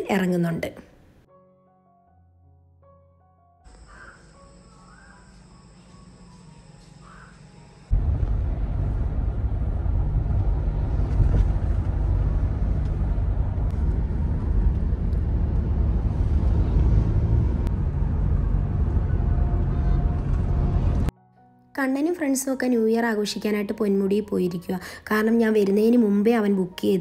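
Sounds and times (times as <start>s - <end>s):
car cabin road and engine rumble: 7.9s - 21.1s.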